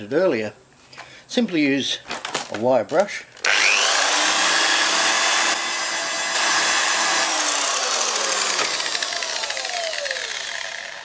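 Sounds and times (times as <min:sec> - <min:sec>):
angle grinder winding down: 0:03.4 - 0:11.0.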